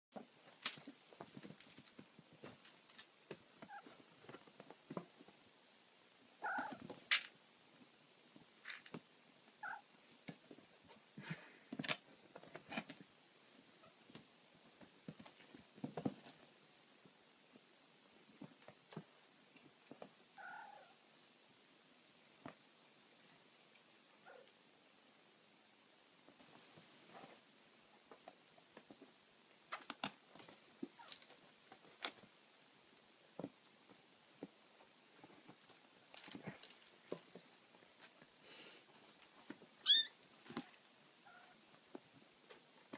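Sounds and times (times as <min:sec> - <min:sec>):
kittens scuffling and scrabbling: 0:00.2 - 0:05.5, 0:10.1 - 0:17.2, 0:18.1 - 0:20.2, 0:26.2 - 0:42.9.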